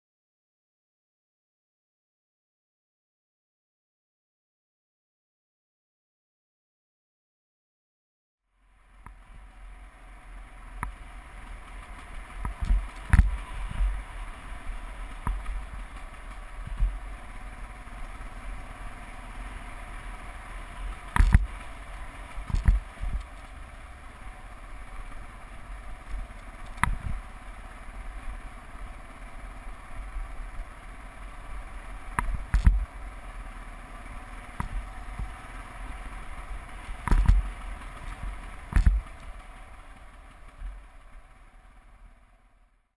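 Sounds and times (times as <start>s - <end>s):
motorcycle engine and road noise: 8.5s - 42.9s
knocks and thuds over bumps: 10.8s - 18.8s, 20.2s - 23.9s, 25.0s - 27.4s, 32.0s - 33.0s, 36.4s - 41.0s.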